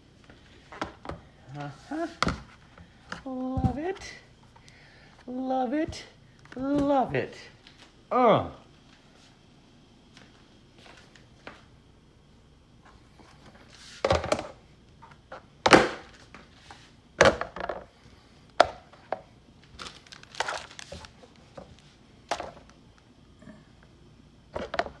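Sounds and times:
plastic pans knocking: 17.2 - 17.9, 18.6 - 19.2.

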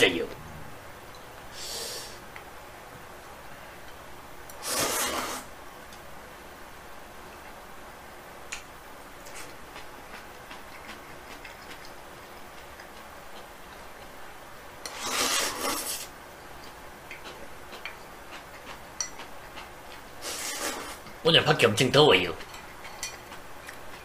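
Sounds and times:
chewing: 9.2 - 14.1, 16.6 - 20.9, 22.4 - 24.0.

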